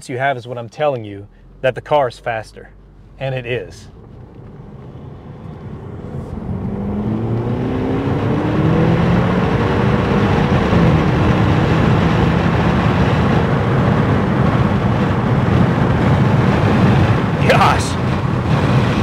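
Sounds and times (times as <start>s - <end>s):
car engine accelerating: 0.0s - 19.0s
transmission shifting up: 0.0s - 19.0s.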